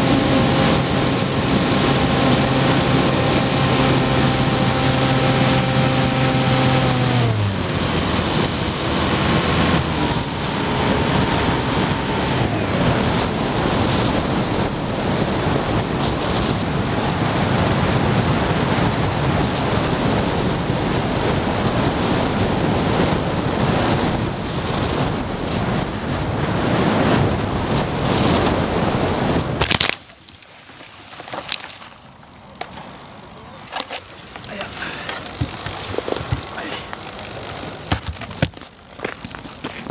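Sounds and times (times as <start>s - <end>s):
electric motor whine: 0.0s - 20.2s, 29.6s - 39.9s
wind rushing over airframe: 0.0s - 29.6s
plane knocking into grass: 33.7s - 39.9s.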